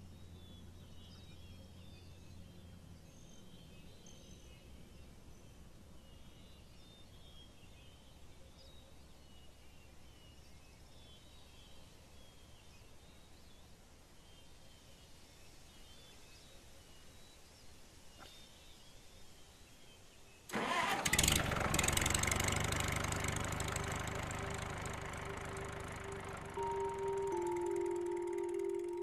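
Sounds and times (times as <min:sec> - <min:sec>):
small birds chirping: 0:00.0 - 0:20.5
low steady hum: 0:23.4 - 0:29.0.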